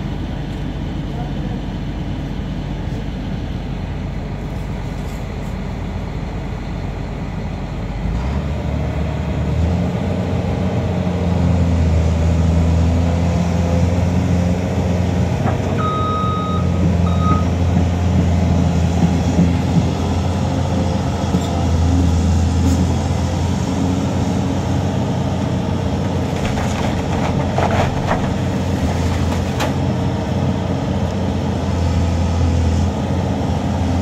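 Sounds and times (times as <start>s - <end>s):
diesel engine revving: 7.8s - 34.0s
backup alarm beeps: 15.8s - 17.5s.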